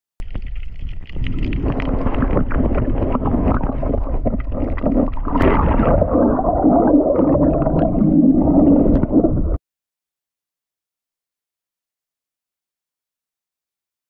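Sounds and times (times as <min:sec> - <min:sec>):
churning water underwater: 0:00.2 - 0:09.6.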